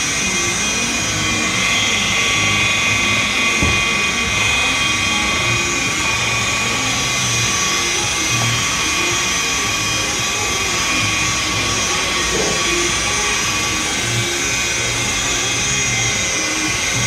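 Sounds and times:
electric polisher motor whine: 0.0 - 17.0.

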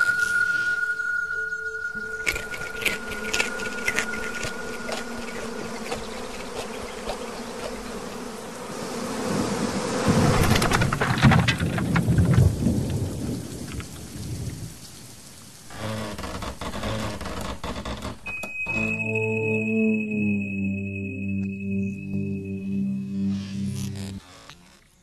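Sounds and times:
rain hiss: 0.0 - 17.6
rumble of thunder: 10.1 - 15.2
steady buzzing hum: 22.4 - 24.8.

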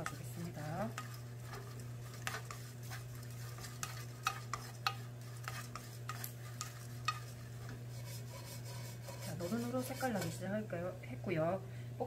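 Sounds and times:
wooden spoon scraping frying pan: 0.0 - 10.5
steady low hum: 0.0 - 12.0.

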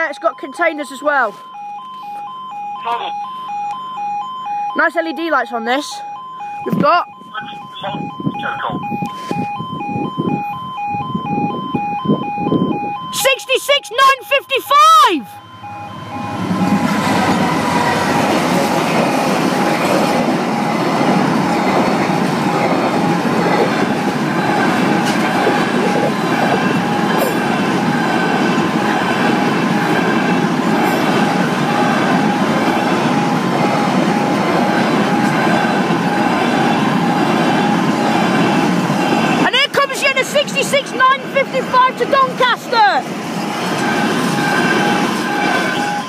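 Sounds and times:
diesel locomotive passing: 0.0 - 1.7, 2.3 - 46.0
wagons wheel and rail noise: 11.1 - 46.0.

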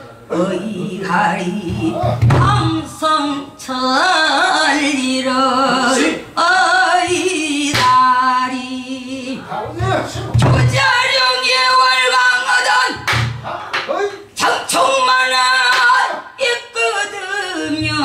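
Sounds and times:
woman singing with heavy vibrato: 0.0 - 13.4, 14.4 - 18.0
sharp knocks: 9.7 - 11.0, 13.0 - 13.9.

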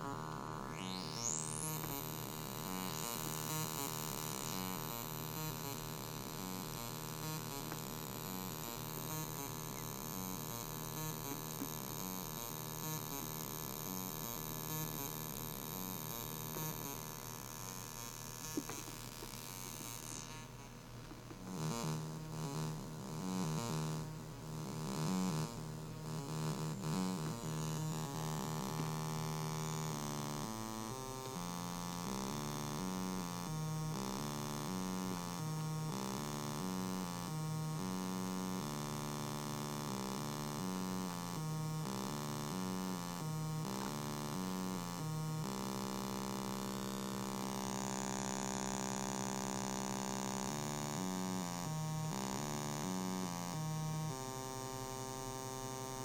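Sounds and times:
buzzy synthesizer drone: 0.0 - 18.8.

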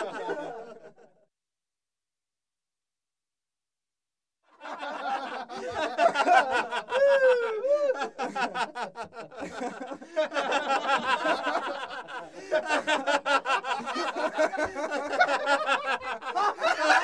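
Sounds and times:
boys laughing: 0.0 - 1.2, 4.6 - 17.0.

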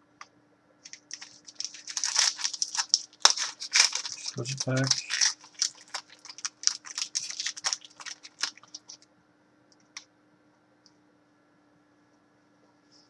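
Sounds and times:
card wrapper crinkling: 0.8 - 9.0
cards clicking and crackling: 0.8 - 9.0.

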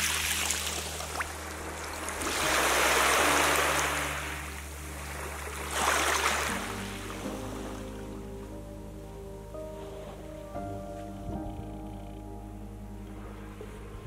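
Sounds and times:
waves washing up a beach: 0.0 - 7.8
soft background music: 0.0 - 14.0.

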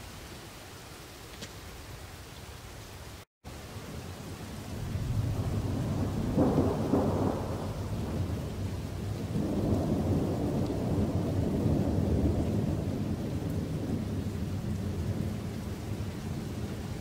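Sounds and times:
rolling thunder: 4.6 - 17.0.

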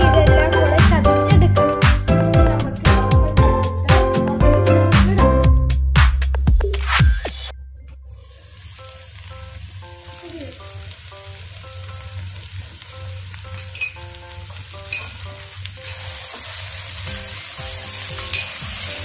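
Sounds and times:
light background melody: 0.0 - 8.1, 8.8 - 19.0
vegetables sizzling in a pan: 8.1 - 19.0.

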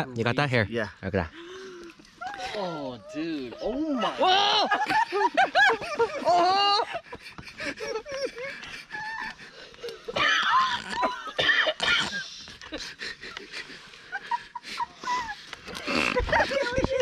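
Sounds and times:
people laughing and squealing: 2.0 - 11.4, 12.6 - 17.0
wheezy breaths: 7.0 - 10.1.

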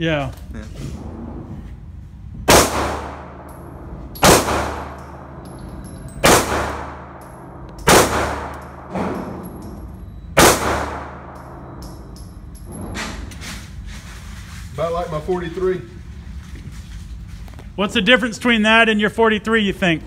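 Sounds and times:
pistol shots: 2.5 - 5.5, 6.2 - 9.6, 10.4 - 11.8
faint gunshot: 7.9 - 9.2, 10.4 - 11.3.

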